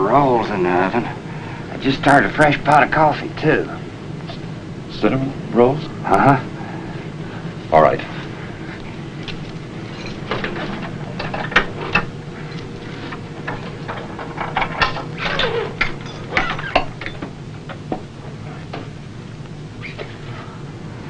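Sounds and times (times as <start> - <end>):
steady low hum: 0.0 - 21.0
metal clicks and clatter: 13.4 - 17.8.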